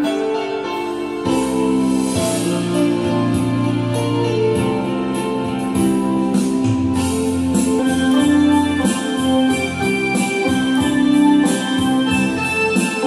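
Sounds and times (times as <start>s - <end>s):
electronic organ melody: 0.0s - 13.0s
programmed drum beat: 0.0s - 13.0s.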